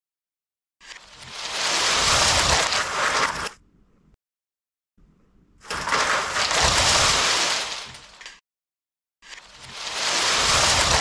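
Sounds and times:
demolition crash crumbling: 1.3s - 3.5s, 5.7s - 8.4s, 9.7s - 11.0s.

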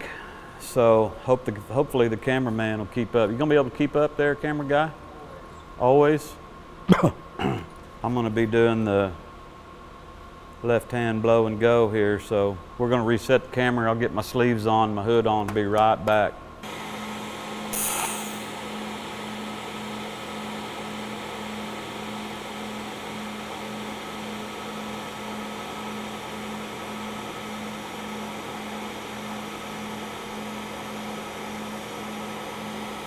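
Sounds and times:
welding arc hissing: 17.5s - 18.7s.

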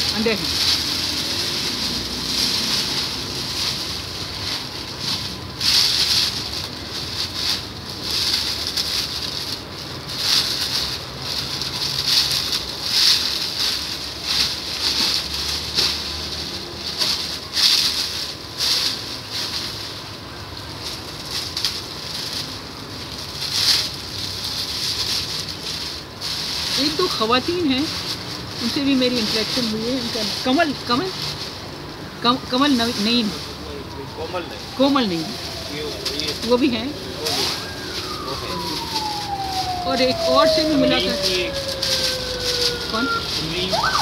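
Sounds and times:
plastic packaging crinkling: 0.0s - 44.0s.

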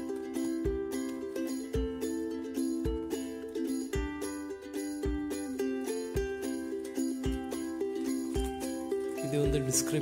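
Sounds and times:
low beat: 0.0s - 3.2s
light chiming melody: 6.7s - 10.0s.

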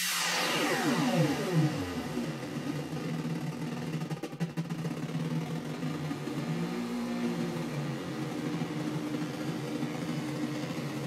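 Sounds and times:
buzzy synthesizer drone: 0.0s - 3.9s.

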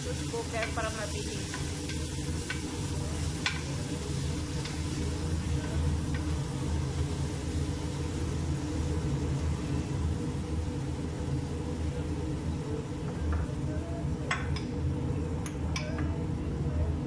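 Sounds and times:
meat sizzling in a pot: 0.0s - 13.6s
steady low hum: 0.0s - 17.0s.

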